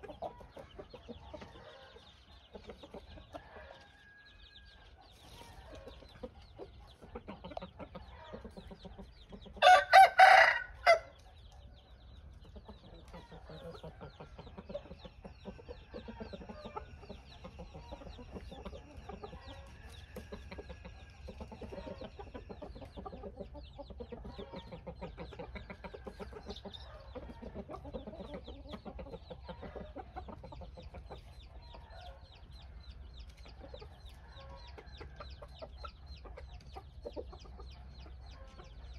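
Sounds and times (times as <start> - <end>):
chickens scratching: 0.0 - 37.6
soft clucking: 4.7 - 9.7, 11.0 - 38.9
rooster crowing: 9.6 - 11.1.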